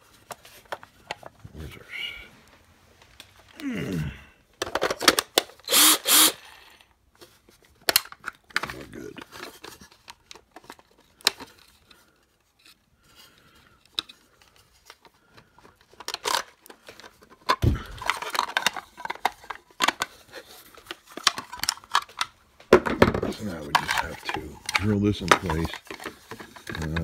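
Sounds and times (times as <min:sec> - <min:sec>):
plastic clicks and rattles: 0:04.6 - 0:05.6, 0:07.2 - 0:12.0, 0:13.8 - 0:27.0
thump: 0:17.6 - 0:18.0.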